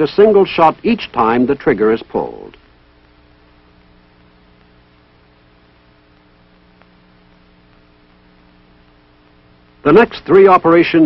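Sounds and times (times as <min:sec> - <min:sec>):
old film soundtrack hum and hiss: 0:00.0 - 0:11.0
faint tick: 0:02.5 - 0:03.2, 0:04.5 - 0:04.8, 0:06.1 - 0:08.2.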